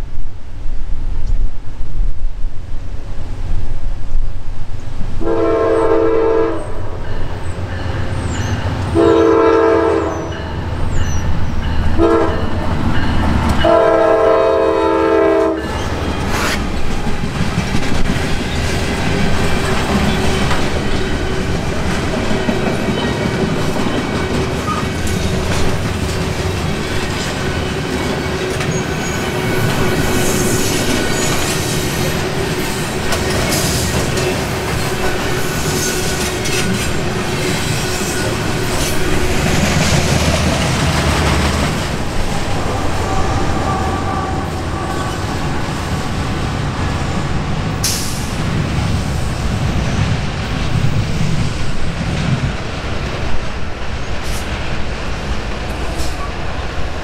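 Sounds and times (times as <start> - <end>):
locomotive air horn: 5.2 - 6.8, 8.9 - 10.5, 12.0 - 12.5, 13.6 - 16.6, 42.3 - 45.6
train wheels clattering on rails: 15.5 - 44.0, 44.6 - 57.0.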